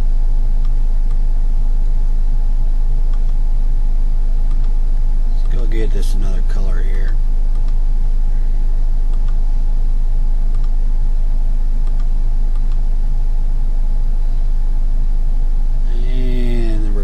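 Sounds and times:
low electrical hum: 0:00.0 - 0:17.0
faint clicks: 0:04.5 - 0:04.8, 0:10.5 - 0:10.8.

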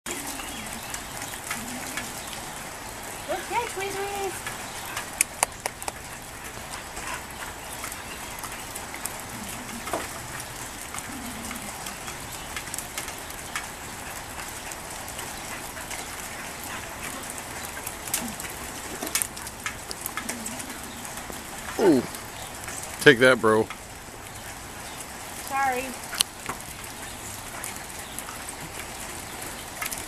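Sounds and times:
sharp drip ticks: 0:00.1 - 0:30.0
steady rain hiss: 0:00.1 - 0:30.0.

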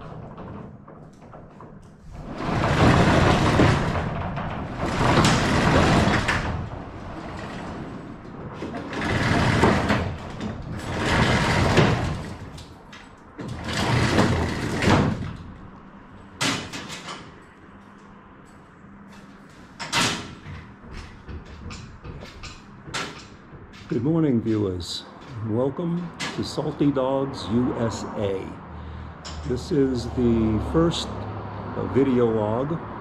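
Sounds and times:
roll-up door rattling open: 0:00.0 - 0:17.5, 0:19.1 - 0:24.5, 0:25.1 - 0:26.8.

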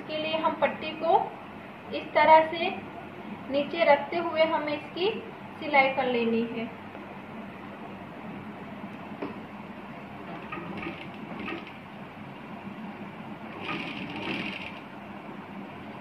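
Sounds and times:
sewing machine motor hum: 0:10.2 - 0:12.0, 0:13.4 - 0:15.1
sewing machine stitching: 0:10.3 - 0:11.8, 0:13.4 - 0:14.9.

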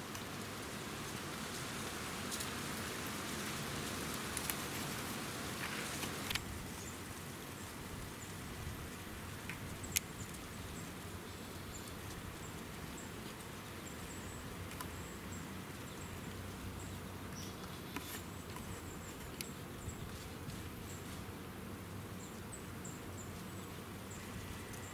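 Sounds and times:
low background hiss: 0:00.0 - 0:24.9.

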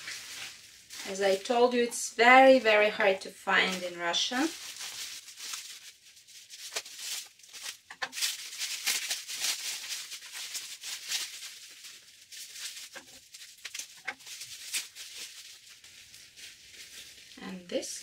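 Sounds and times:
bubble wrap crinkling and rustling: 0:00.0 - 0:18.0
scissors snipping bubble wrap: 0:06.6 - 0:11.8, 0:12.4 - 0:15.9.

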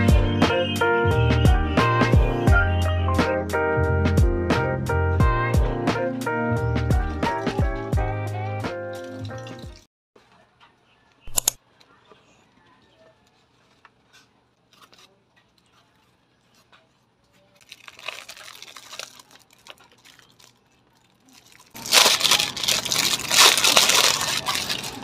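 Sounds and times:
plastic wrapping crinkling: 0:11.7 - 0:25.0
packaging rustling: 0:13.0 - 0:25.0.

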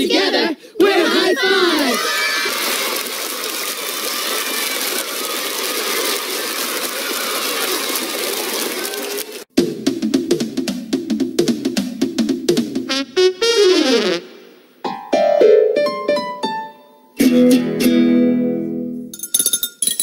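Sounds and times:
children cheering and shouting: 0:00.0 - 0:09.5.

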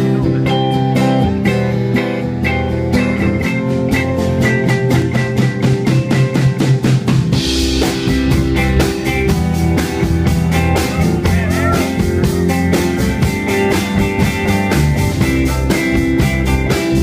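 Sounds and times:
drum kit beat: 0:00.0 - 0:17.0
live rock band playing: 0:00.0 - 0:17.0.

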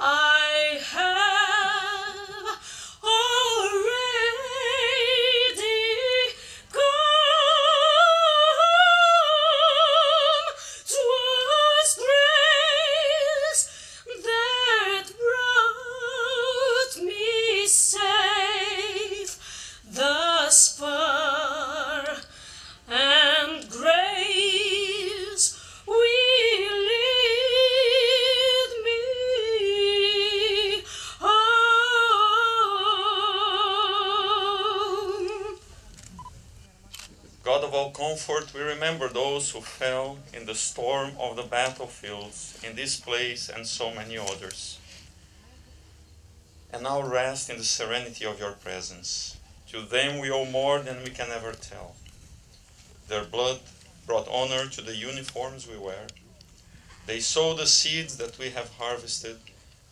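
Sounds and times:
woman singing classical: 0:00.0 - 0:35.7.

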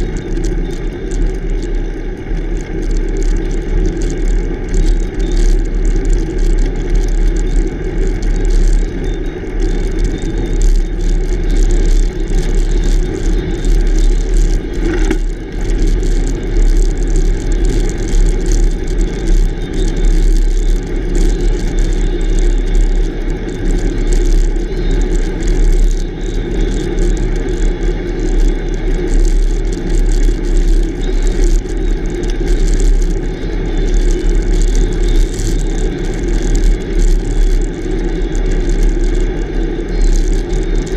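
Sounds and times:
tyre rolling on asphalt: 0:11.5 - 0:21.2.

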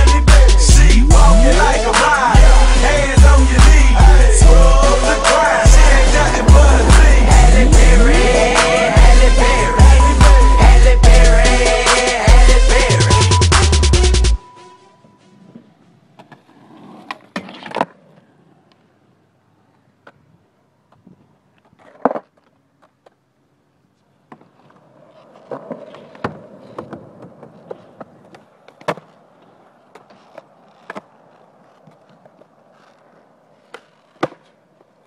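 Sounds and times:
skateboard wheels rolling on concrete: 0:00.0 - 0:35.0
skateboard clacking on ground: 0:15.4 - 0:18.9, 0:20.9 - 0:23.3, 0:24.0 - 0:35.0.

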